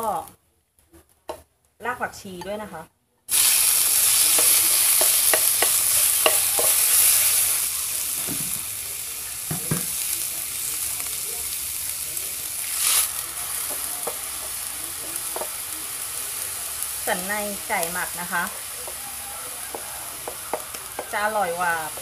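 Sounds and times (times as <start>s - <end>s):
chicken sizzling in hot oil: 3.3s - 22.0s
spatula scraping and tapping pan: 4.0s - 7.4s, 12.8s - 14.6s, 15.2s - 15.7s, 17.8s - 22.0s.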